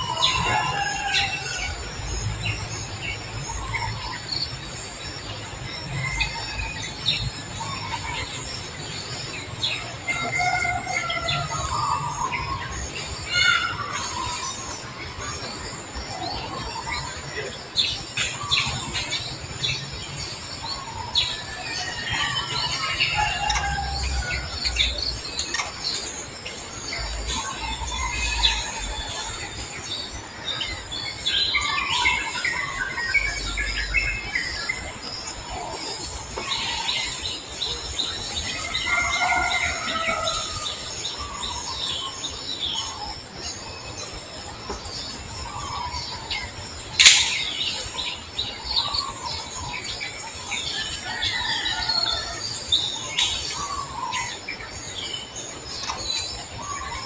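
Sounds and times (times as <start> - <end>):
animals squeaking and chirping: 0.0 - 57.0
sharp click: 47.0 - 47.5.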